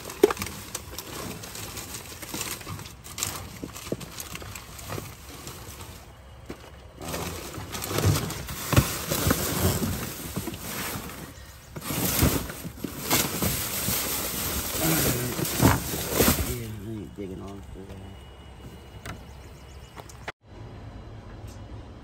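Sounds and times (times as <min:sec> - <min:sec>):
cardboard boxes scraping and knocking: 0:00.0 - 0:16.8
plastic bags crinkling: 0:00.0 - 0:16.9.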